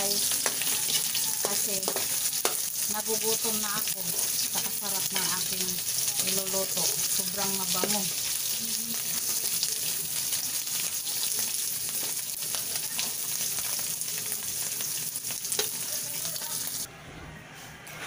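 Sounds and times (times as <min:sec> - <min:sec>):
fish sizzling in oil: 0:00.0 - 0:16.9
metal spatula scraping pan: 0:00.2 - 0:02.6.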